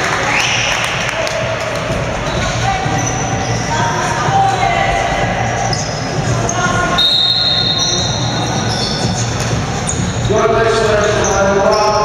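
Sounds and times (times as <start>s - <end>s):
players calling: 0.0s - 12.0s
shoe squeaks on wooden floor: 2.2s - 4.2s, 5.7s - 10.4s, 11.0s - 12.0s.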